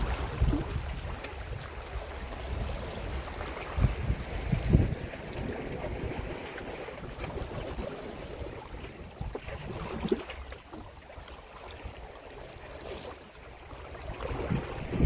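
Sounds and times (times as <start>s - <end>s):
wind buffeting the microphone: 0.0s - 10.2s, 13.8s - 15.0s
waves washing against rocks: 0.0s - 10.6s, 12.6s - 15.0s.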